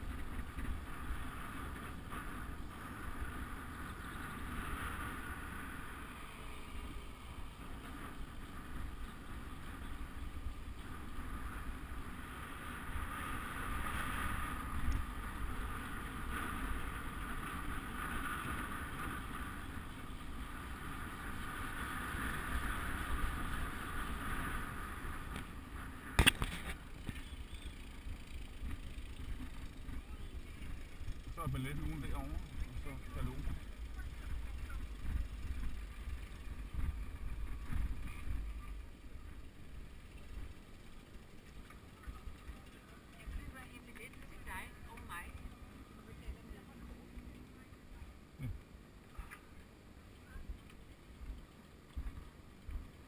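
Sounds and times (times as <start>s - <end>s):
tyres rumbling on tarmac: 0.0s - 53.0s
wind on microphone: 32.4s - 38.8s.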